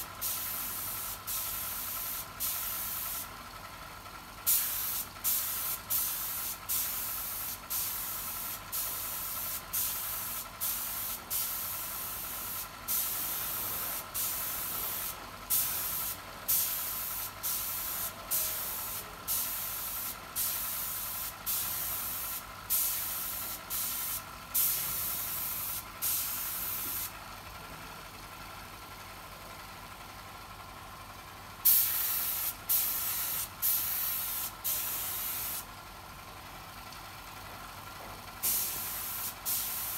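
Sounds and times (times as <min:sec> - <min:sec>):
spray gun hissing bursts: 0:00.2 - 0:03.2, 0:04.5 - 0:27.1, 0:31.6 - 0:35.7, 0:38.4 - 0:39.9.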